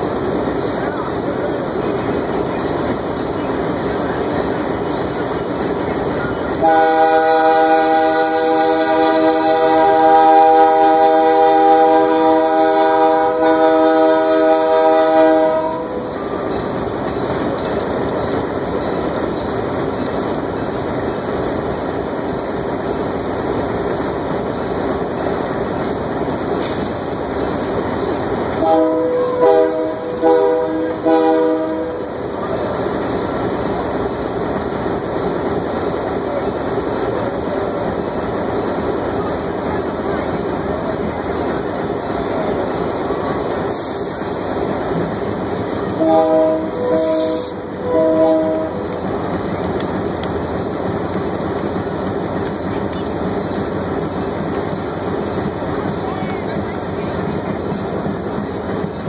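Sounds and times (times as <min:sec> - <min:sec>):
locomotive rolling rumble: 0:00.0 - 0:59.0
locomotive air horn: 0:06.6 - 0:16.1, 0:28.6 - 0:32.1, 0:46.0 - 0:49.0.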